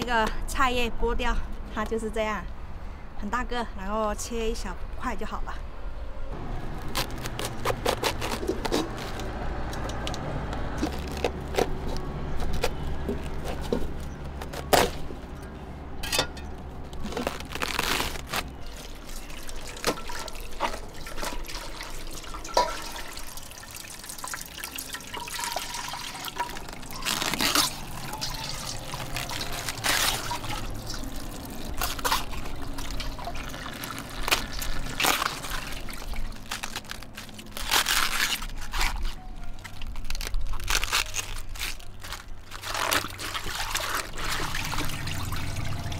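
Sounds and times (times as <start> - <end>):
leaves and container knocking: 16.0 - 23.5, 24.3 - 45.9
water trickling and splashing: 16.0 - 45.9.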